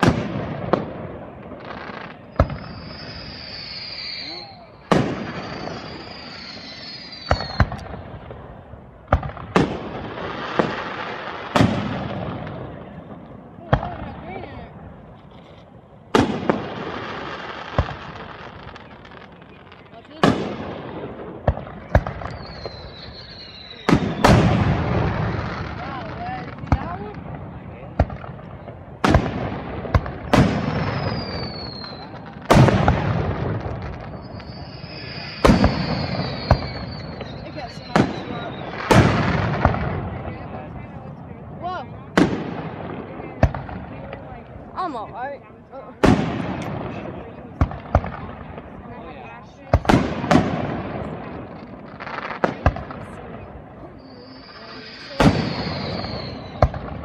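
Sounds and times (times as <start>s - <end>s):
firework shells bursting: 0.0s - 8.4s, 28.0s - 40.1s
fireworks bangs: 0.0s - 57.0s
hissing crackle of fireworks: 0.0s - 57.0s
firework whistle: 2.1s - 8.0s, 21.9s - 26.0s, 30.2s - 39.8s, 53.8s - 57.0s.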